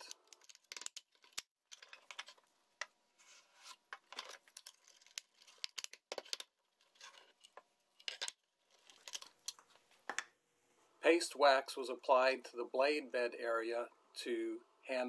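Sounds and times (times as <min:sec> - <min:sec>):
wood clicking and scraping on wood: 0:00.0 - 0:02.9, 0:03.6 - 0:10.3.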